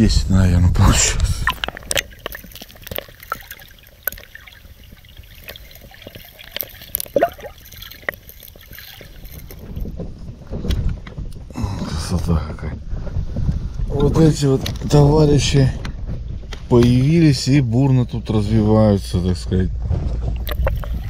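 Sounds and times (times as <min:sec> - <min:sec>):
water lapping and trickling: 0:01.0 - 0:10.6, 0:20.2 - 0:21.0.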